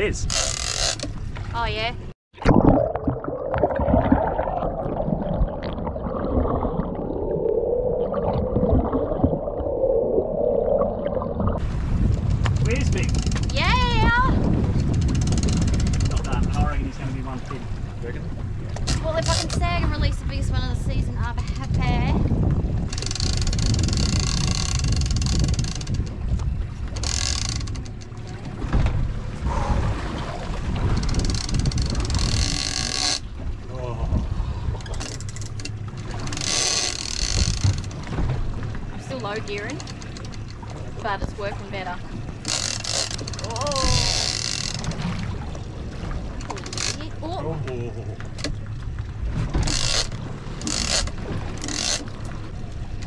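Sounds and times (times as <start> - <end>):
boat at sea: 0.0 - 53.0
muffled underwater rushing hum: 1.1 - 53.0
underwater gurgles: 2.4 - 11.7
wind on microphone: 3.5 - 27.1, 28.4 - 35.0, 43.1 - 46.3.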